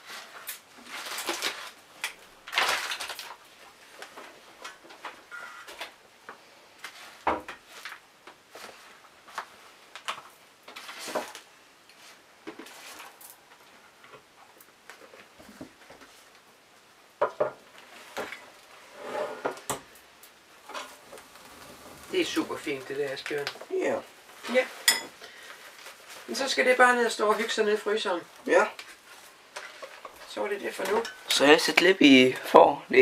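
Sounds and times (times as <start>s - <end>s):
foil rustling: 0.0s - 4.8s, 20.6s - 31.0s
utensil scraping foil tray: 20.7s - 23.3s.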